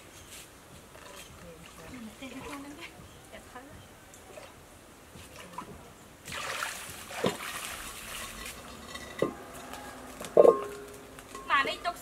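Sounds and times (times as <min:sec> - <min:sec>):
water splashing: 0:05.2 - 0:10.6
metal pot clanking: 0:08.2 - 0:09.7, 0:10.4 - 0:11.8
pots knocking on the ground: 0:08.3 - 0:11.8.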